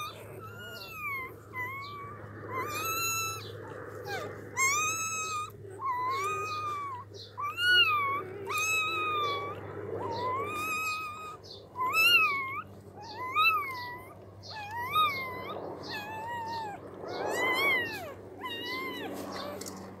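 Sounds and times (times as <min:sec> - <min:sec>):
newborn puppies crying: 0:00.0 - 0:20.0.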